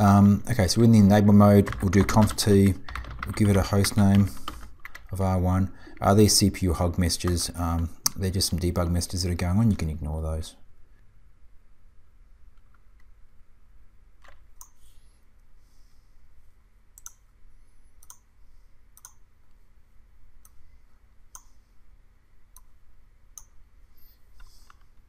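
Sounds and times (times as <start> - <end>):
faint low hum: 0.0 - 25.0
computer mouse clicking: 17.0 - 17.3, 18.0 - 18.3, 19.0 - 19.2.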